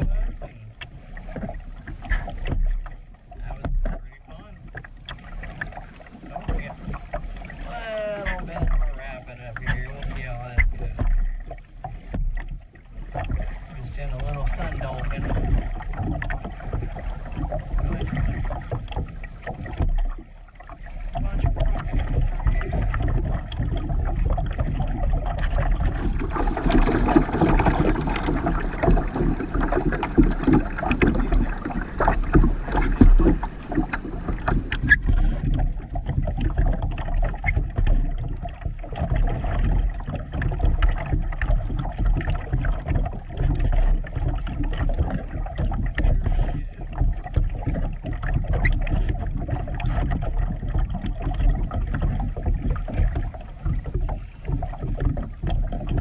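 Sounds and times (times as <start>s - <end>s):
hissy rippling water: 0.0s - 56.0s
low rumble: 0.0s - 56.0s
water lapping against kayak hull: 0.0s - 56.0s.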